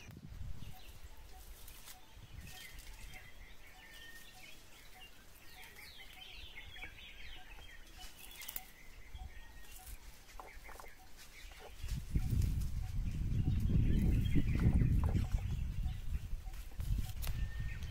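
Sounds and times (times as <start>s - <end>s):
wild birds calling: 0.0s - 17.9s
high bird chirps: 0.6s - 17.9s
soft crackles: 7.6s - 9.0s.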